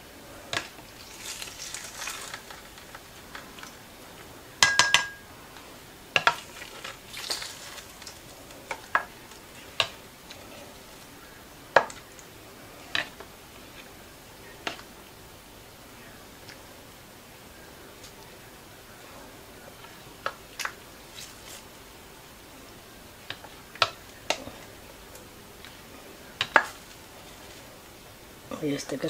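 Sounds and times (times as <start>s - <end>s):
spoon clinking on dishes: 4.6s - 5.3s.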